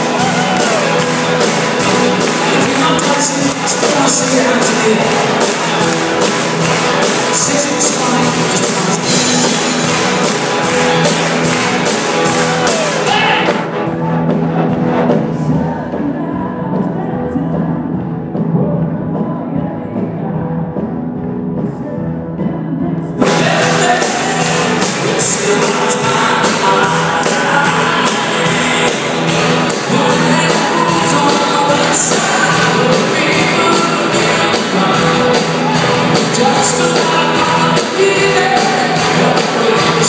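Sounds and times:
drum beat with cymbals: 0.0 - 15.2, 23.2 - 40.0
bass guitar: 0.0 - 40.0
electric guitars: 0.0 - 40.0.

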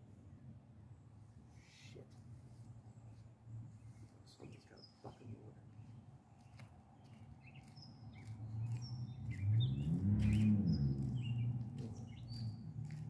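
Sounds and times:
small birds chirping: 1.6 - 13.0
low engine hum passing: 3.0 - 13.0.

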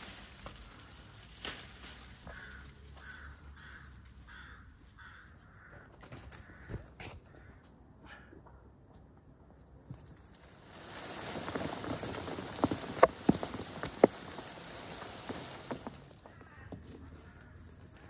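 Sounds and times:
leaves and branches rustling: 0.0 - 7.7, 9.2 - 18.0
fruits thumping onto grass: 10.4 - 17.6.

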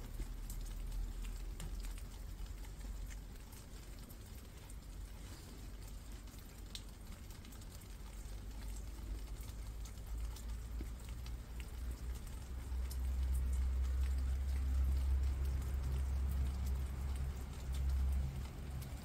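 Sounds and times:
rain falling on foliage: 0.0 - 19.0
drops ticking: 5.8 - 19.0.

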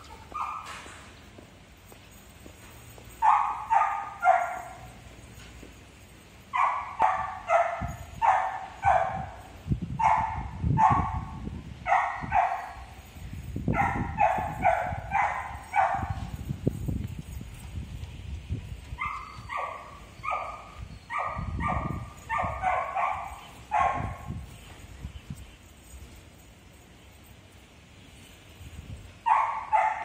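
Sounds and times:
dog barking: 3.2 - 4.8, 6.6 - 9.4, 10.0 - 12.8, 13.7 - 16.2, 19.0 - 24.3, 29.3 - 30.0.

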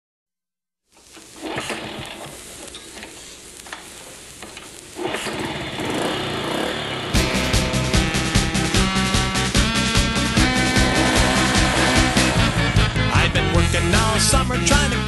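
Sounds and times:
small engine running roughly: 5.0 - 13.0
music: 7.2 - 15.0.

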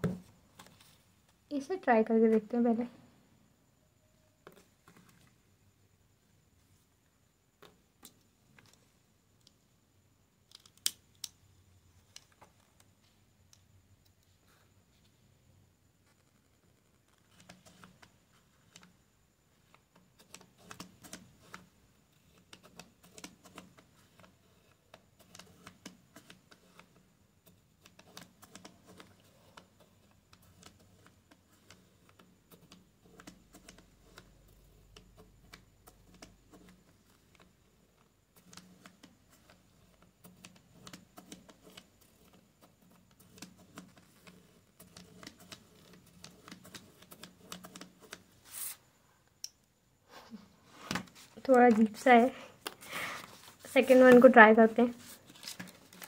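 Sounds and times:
plastic gears clicking: 10.5 - 11.4.

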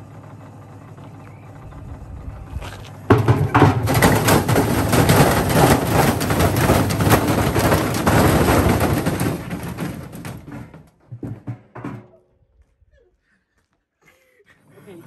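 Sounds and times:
drum banging against cabinet: 3.1 - 12.1.

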